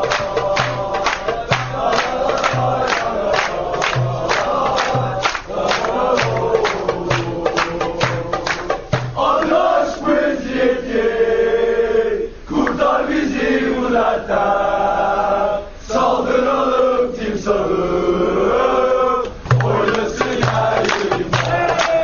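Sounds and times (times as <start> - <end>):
low beats: 0.0 - 9.5, 19.4 - 22.0
crowd chanting in unison: 0.0 - 22.0.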